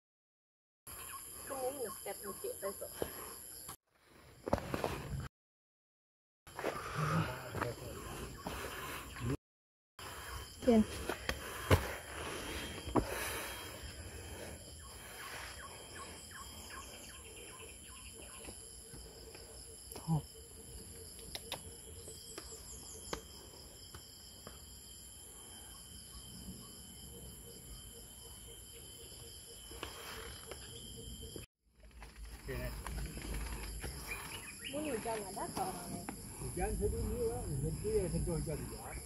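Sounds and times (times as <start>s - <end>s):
insects buzzing: 10.0s - 31.5s, 32.1s - 39.0s.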